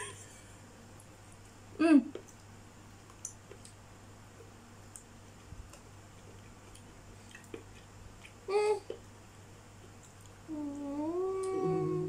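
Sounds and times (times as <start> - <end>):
baby whining: 10.5 - 12.0.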